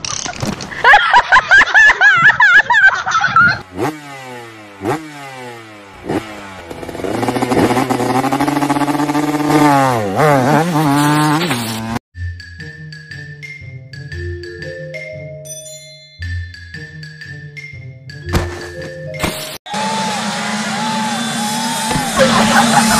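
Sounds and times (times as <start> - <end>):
motor scooter engine revving: 3.6 - 12.0, 19.7 - 22.9.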